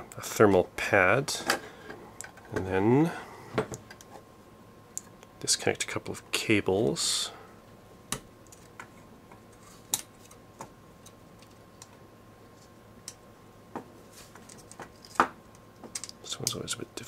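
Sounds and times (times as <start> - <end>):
connectors clicking and tapping: 14.4 - 16.7.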